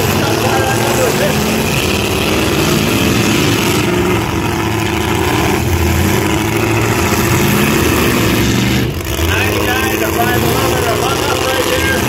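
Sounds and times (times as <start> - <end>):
truck engines revving: 0.0 - 12.0.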